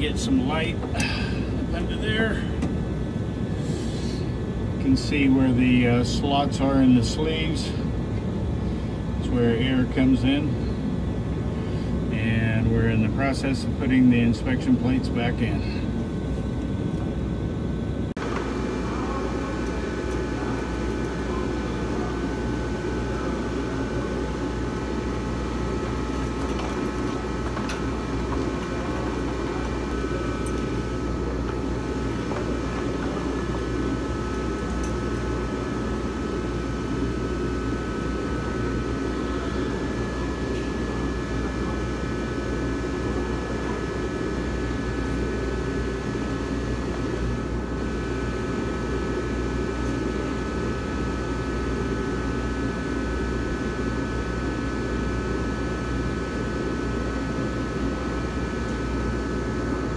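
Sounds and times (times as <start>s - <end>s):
mechanical drone with low hum: 0.0s - 59.9s
faint whining tones: 15.2s - 53.4s.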